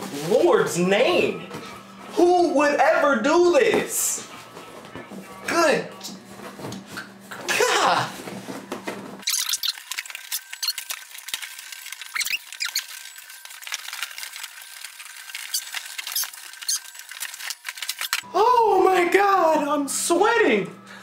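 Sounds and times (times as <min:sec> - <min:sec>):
plastic and paper crinkling: 0:07.7 - 0:18.2
short squeaks: 0:09.2 - 0:10.8, 0:12.1 - 0:13.1.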